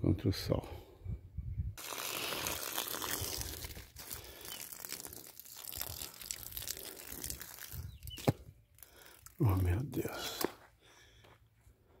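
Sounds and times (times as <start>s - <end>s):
fine crackling of soaking shavings: 1.8s - 9.5s
hose water pouring onto mulch: 1.8s - 9.5s.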